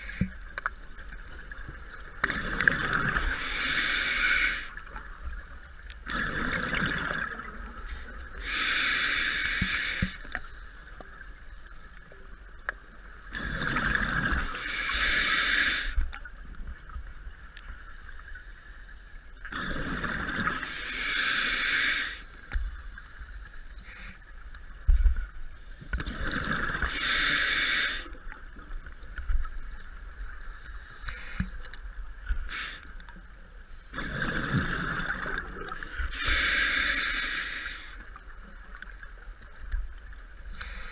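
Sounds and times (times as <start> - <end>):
diver breathing through regulator: 3.1 - 4.8, 8.0 - 10.4, 14.5 - 16.0, 20.6 - 22.4, 26.8 - 28.2, 30.5 - 31.6, 35.9 - 38.0, 40.5 - 40.9.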